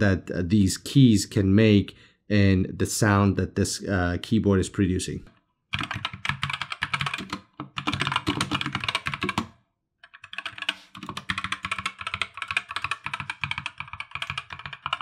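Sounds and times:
mechanical keyboard typing: 5.7s - 15.0s.

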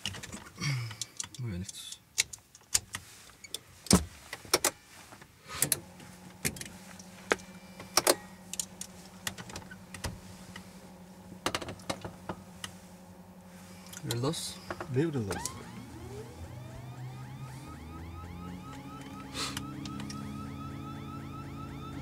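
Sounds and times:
steady low electrical hum: 3.0s - 22.0s
cockpit switches clicking: 13.8s - 15.8s, 18.7s - 20.2s.

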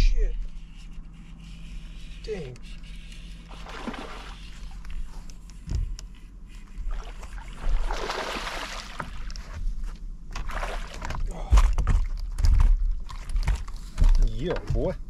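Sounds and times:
water sloshing against boat: 1.3s - 15.0s
fish splashing: 3.4s - 4.8s, 6.8s - 9.5s, 10.4s - 11.2s
knocks on boat: 14.0s - 15.0s.

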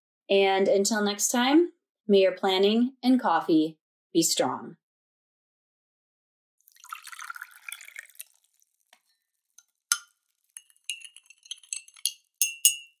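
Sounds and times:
liquid pouring: 6.6s - 12.4s
glass clinking: 6.7s - 8.3s, 9.9s - 13.0s.

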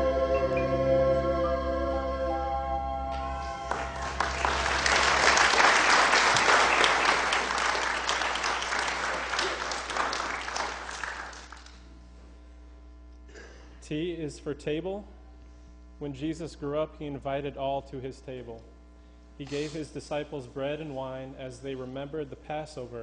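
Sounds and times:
music held notes: 0.0s - 5.4s
low electrical hum: 0.0s - 23.0s
congregation applauding: 3.1s - 11.9s.

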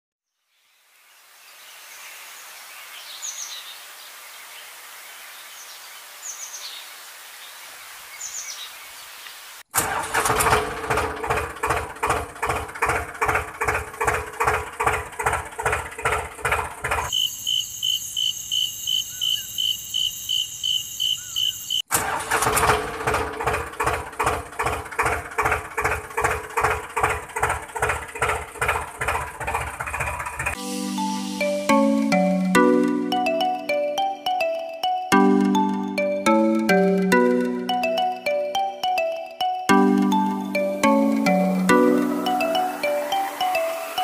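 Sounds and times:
tractor engine chugging: 9.8s - 17.1s, 22.0s - 30.6s.

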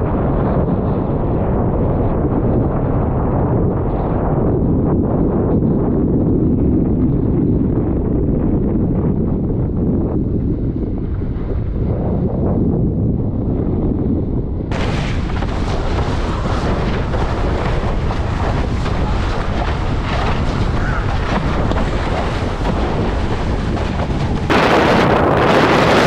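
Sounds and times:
wind buffeting microphone: 0.0s - 26.0s
rush of choppy water: 14.7s - 26.0s.

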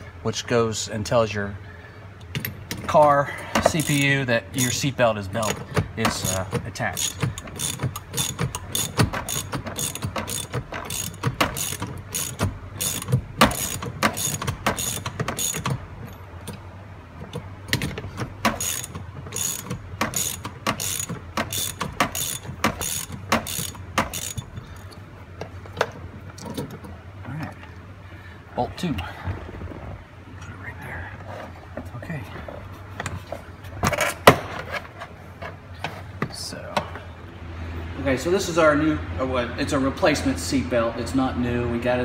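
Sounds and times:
socket ratchet clicking: 3.6s - 15.8s, 17.3s - 25.0s.

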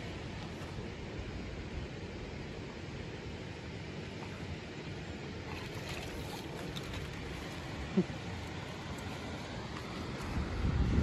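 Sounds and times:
flowing river water: 0.0s - 11.0s
wind on microphone: 10.1s - 11.0s.

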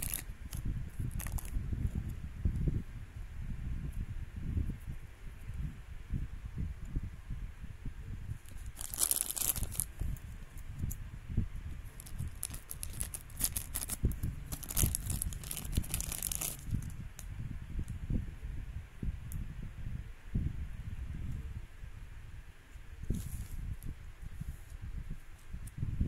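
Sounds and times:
plastic bag crinkling and tearing: 0.0s - 1.6s, 8.4s - 10.2s, 11.9s - 16.9s.

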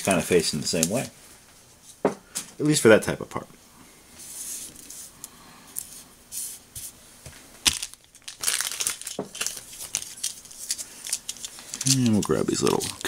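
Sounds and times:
crinkling and rustling: 0.6s - 1.2s, 7.3s - 13.0s.

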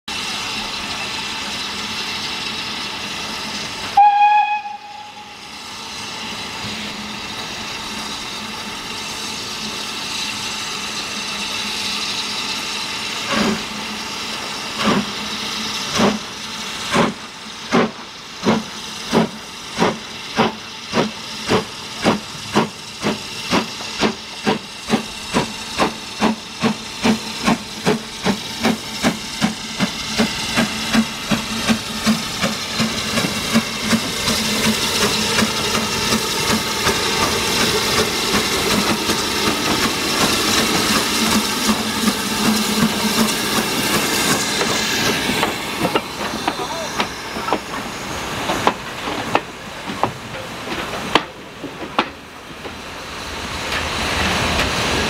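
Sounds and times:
hiss of steam: 0.1s - 55.0s
steam locomotive whistle: 3.9s - 5.5s.

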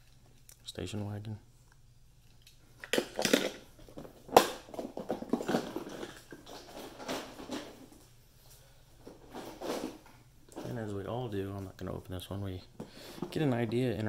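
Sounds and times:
toy cars rattling and clacking: 2.8s - 7.9s.

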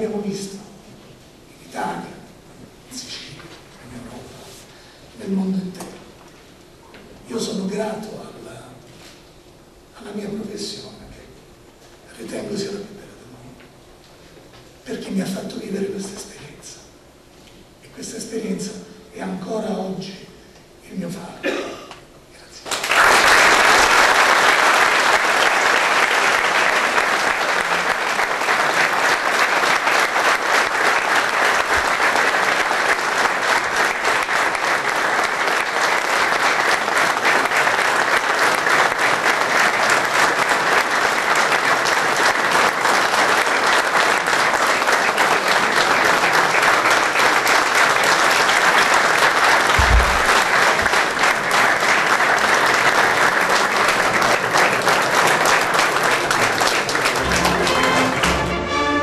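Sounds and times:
crowd applauding: 22.7s - 59.0s.

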